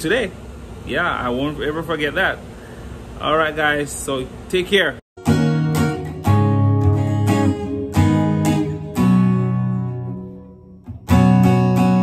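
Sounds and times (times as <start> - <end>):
strummed acoustic guitar chords: 5.2 - 12.0.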